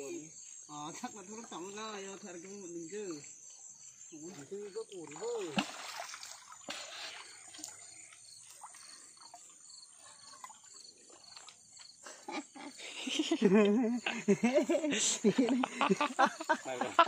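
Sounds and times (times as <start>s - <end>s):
insects chirping: 0.0s - 17.0s
hands splashing in shallow water: 5.0s - 9.5s.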